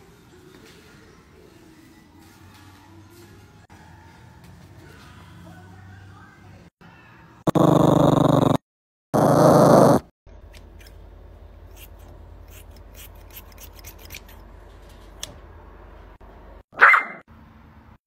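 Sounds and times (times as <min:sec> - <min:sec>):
scissors snipping hair: 0:11.7 - 0:14.4.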